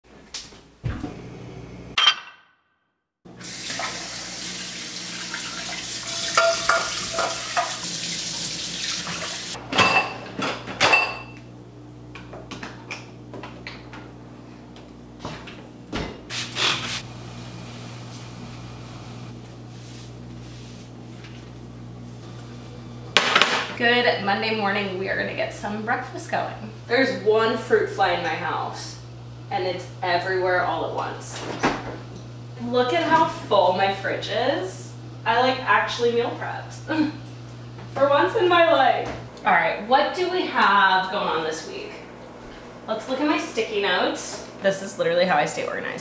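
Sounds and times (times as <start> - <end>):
water running from a tap: 3.3 - 9.6
ceramic bowls clinking: 6.2 - 7.8.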